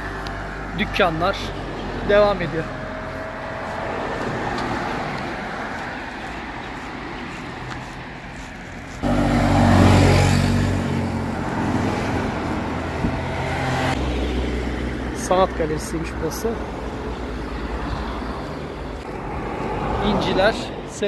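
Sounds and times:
road traffic noise: 0.0 - 21.0
vehicle engine passing close: 7.5 - 20.6.

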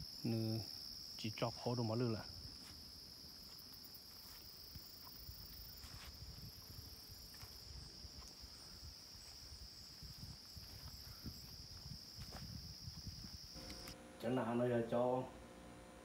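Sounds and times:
insects singing: 0.0 - 15.5
low wind rumble on microphone: 5.3 - 13.6.

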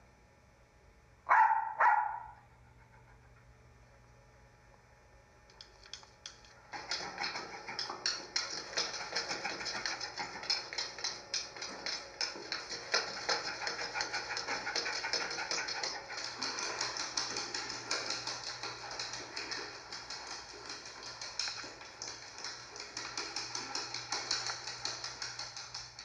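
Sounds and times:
steady low hum: 0.0 - 26.0
rapid clicking and tapping: 5.5 - 26.0.

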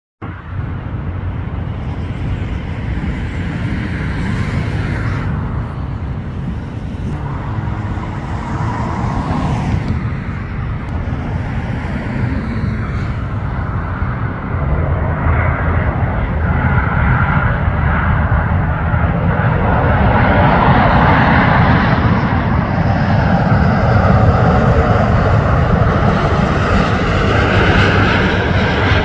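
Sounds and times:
airliner approaching: 0.2 - 29.0
road traffic rumble: 0.2 - 29.0
cars passing: 0.3 - 29.0.

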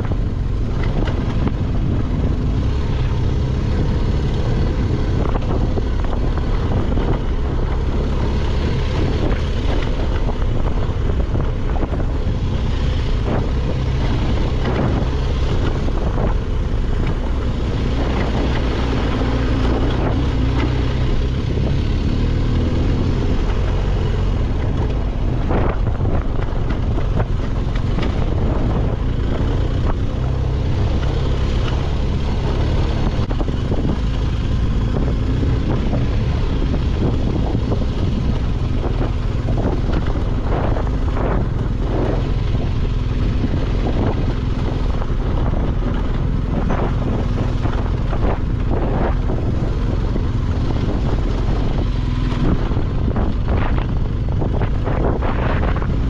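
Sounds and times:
motorcycle engine: 0.0 - 56.0
wind buffeting microphone: 0.0 - 56.0.

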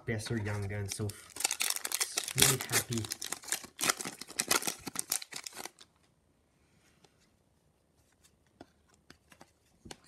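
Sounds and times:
foil wrapper crinkling and tearing: 0.5 - 5.9.

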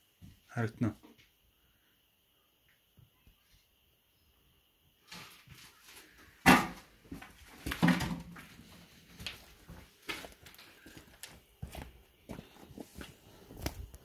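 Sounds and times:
footsteps outdoors: 6.9 - 14.0.

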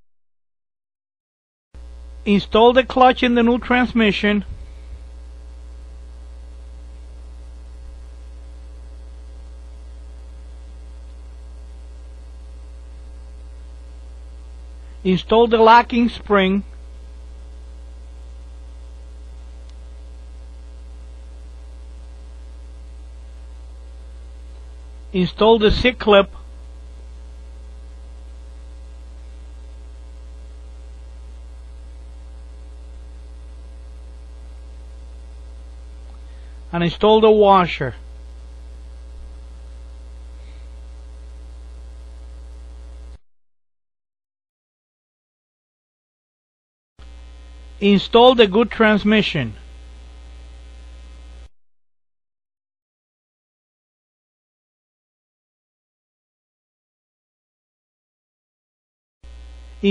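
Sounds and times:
low electrical hum with hiss: 1.8 - 43.2, 47.0 - 51.5, 59.3 - 59.9.

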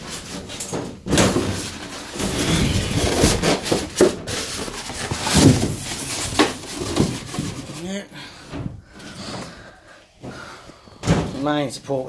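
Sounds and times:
hand rubbing polystyrene foam: 1.7 - 7.9.

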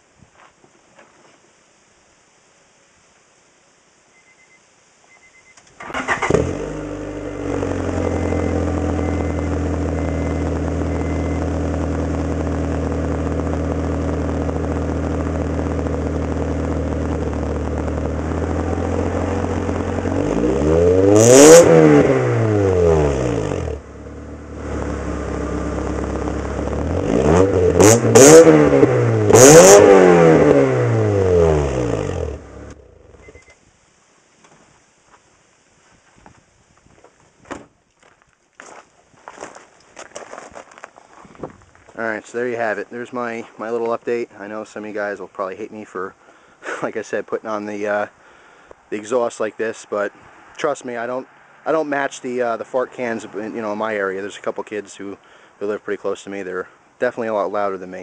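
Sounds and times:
car engine idling and revving: 5.9 - 33.3.

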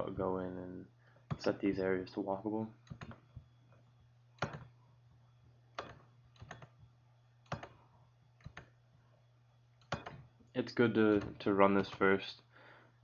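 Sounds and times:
steady low hum: 0.0 - 13.0
computer mouse clicking: 2.8 - 3.2, 4.4 - 4.7, 5.8 - 6.8, 7.4 - 7.8, 8.4 - 8.8, 9.8 - 10.3.

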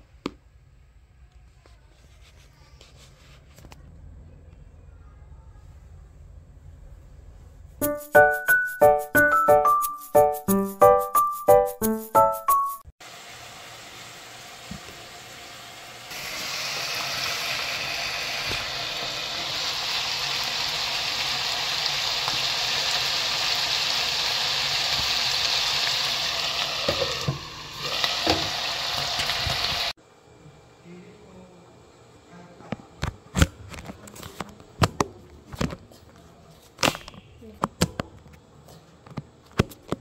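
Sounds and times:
meat sizzling in a pan: 13.0 - 30.0.

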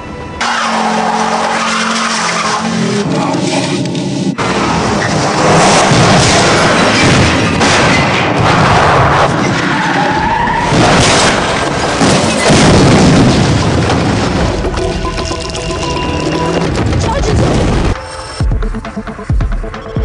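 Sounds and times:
tires skidding: 0.4 - 7.6, 8.2 - 12.0
car crash crunching booms: 4.4 - 14.7.

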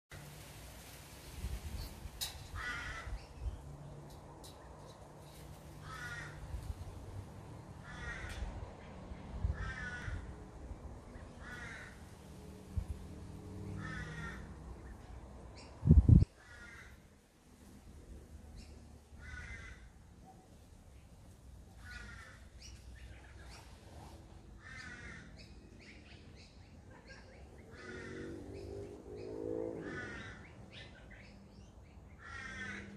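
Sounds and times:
birds cawing harshly: 1.8 - 10.5, 11.1 - 12.4, 13.5 - 15.0, 16.3 - 17.2, 18.6 - 20.2, 21.7 - 23.4, 24.5 - 26.0, 26.9 - 32.9
crow cawing: 2.5 - 3.2, 5.8 - 6.6, 7.8 - 8.5, 9.5 - 10.4, 11.4 - 12.1, 13.7 - 14.6, 16.4 - 17.1, 19.2 - 20.0, 21.8 - 22.5, 24.6 - 25.4, 27.7 - 28.5, 29.8 - 30.6, 32.2 - 32.9.

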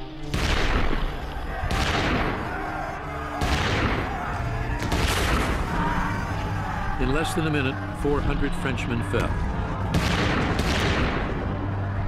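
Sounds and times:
background music: 0.0 - 12.0
massed musket fire: 0.2 - 5.8, 9.9 - 11.8.

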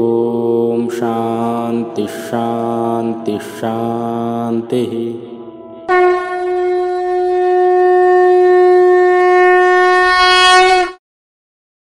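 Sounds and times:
conch shell blown: 5.4 - 11.0.

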